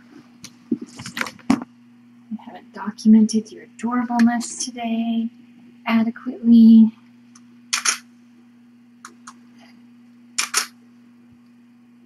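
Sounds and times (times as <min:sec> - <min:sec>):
steady low hum: 0:00.0 - 0:12.0
camera shutter double click: 0:07.7 - 0:08.0, 0:10.4 - 0:10.8.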